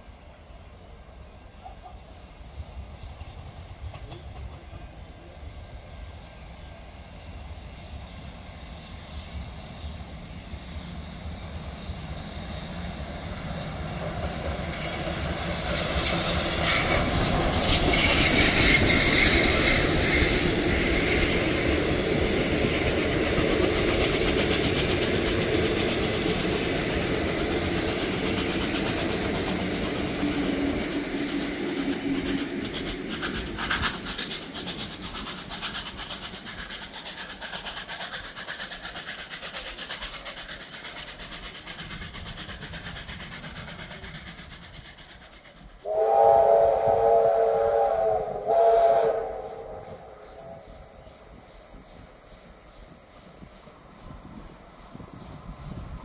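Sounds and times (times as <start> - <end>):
steam locomotive passing: 0.0 - 56.0
clickety-clack of train wheels: 1.6 - 56.0
wind buffeting microphone: 52.7 - 56.0.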